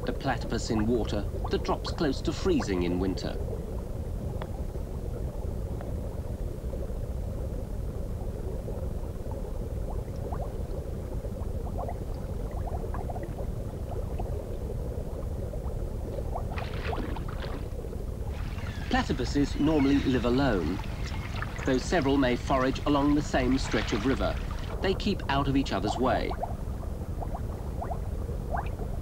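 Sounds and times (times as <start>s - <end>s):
underwater rumble of moving water: 0.0s - 29.0s
water bubbling pops: 0.5s - 3.7s, 9.8s - 29.0s.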